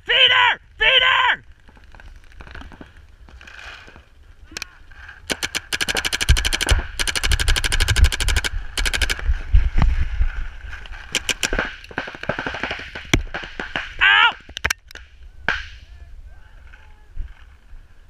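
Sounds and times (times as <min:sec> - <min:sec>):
paintball marker firing: 0:05.3 - 0:09.2, 0:11.2 - 0:14.0.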